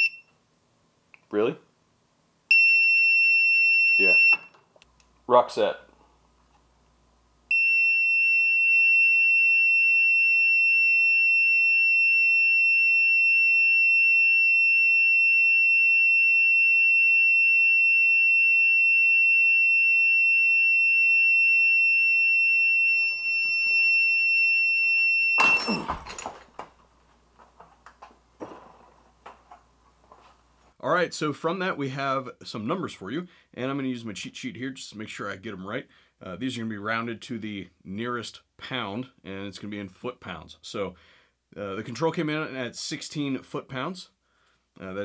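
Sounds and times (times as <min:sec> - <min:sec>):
high-pitched steady beep: 0:00.0 - 0:00.3, 0:02.5 - 0:04.6.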